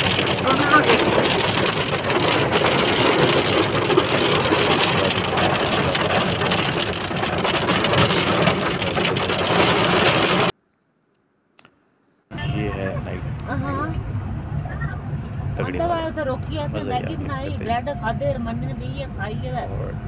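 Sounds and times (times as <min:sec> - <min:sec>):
engine and wet road noise: 0:00.0 - 0:10.5, 0:12.3 - 0:20.0
rain pattering on windshield: 0:00.0 - 0:10.5.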